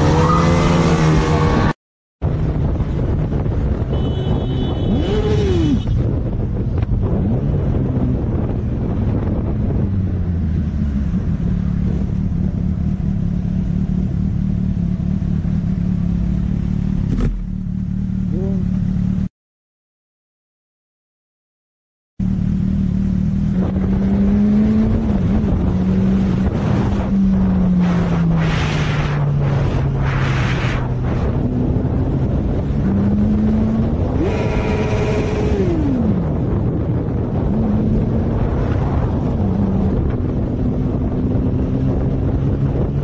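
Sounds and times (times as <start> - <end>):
wind on microphone: 1.4 - 12.7, 23.5 - 43.0
motorcycle engine running: 2.3 - 19.3, 22.2 - 28.0.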